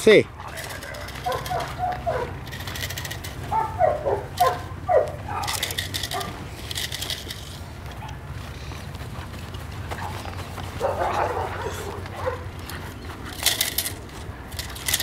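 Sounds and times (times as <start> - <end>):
young dogs yelping: 0.4 - 6.5, 9.9 - 13.7.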